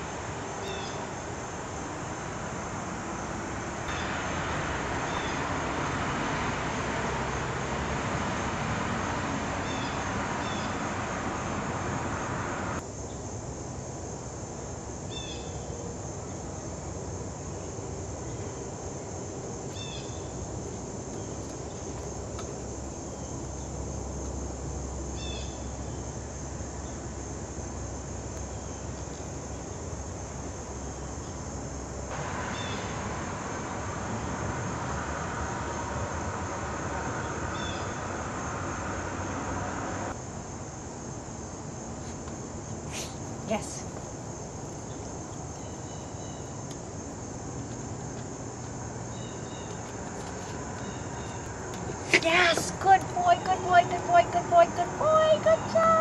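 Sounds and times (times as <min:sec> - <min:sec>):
rushing noise: 0:00.0 - 0:12.8
insect chorus: 0:00.0 - 0:56.0.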